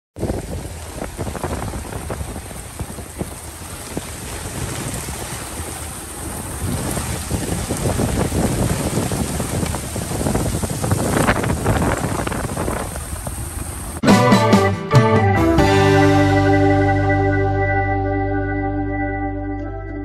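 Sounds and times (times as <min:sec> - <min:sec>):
heavy rain on water: 0:00.2 - 0:14.0
wind buffeting microphone: 0:00.2 - 0:14.0.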